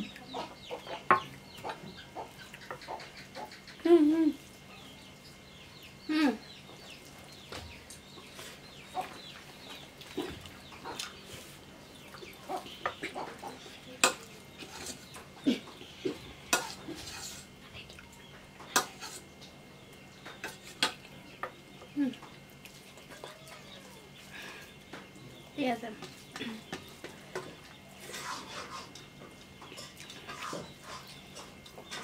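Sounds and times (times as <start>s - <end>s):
chickens clucking: 0.0s - 32.0s.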